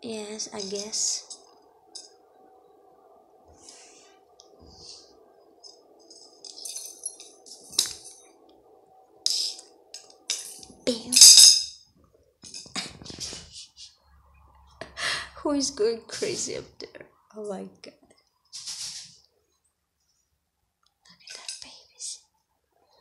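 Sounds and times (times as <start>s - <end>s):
faint steady hum: 0.0s - 23.0s
rattling and jingling clatters: 6.2s - 8.2s.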